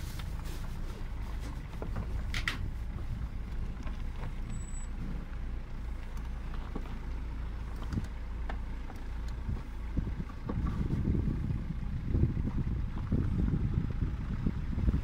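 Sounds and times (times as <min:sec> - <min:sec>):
car engine and tyres rumbling: 0:00.0 - 0:15.0
knocks and rattles in car: 0:01.1 - 0:04.5, 0:07.7 - 0:11.6.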